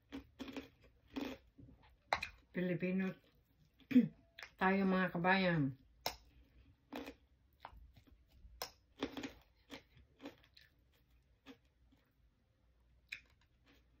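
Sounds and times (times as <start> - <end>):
chewing with crunches: 0.0 - 2.5, 6.2 - 12.4, 13.0 - 14.0.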